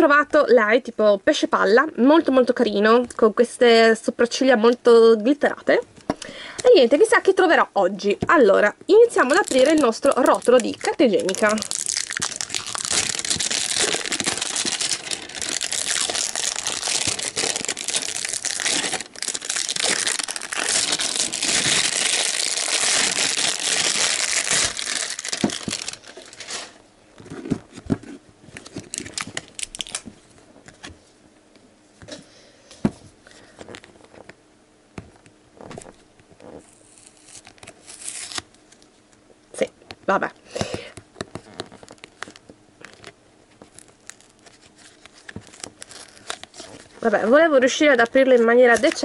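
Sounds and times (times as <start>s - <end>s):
plastic wrap crinkling: 9.0s - 30.8s, 35.6s - 38.9s, 41.2s - 49.0s.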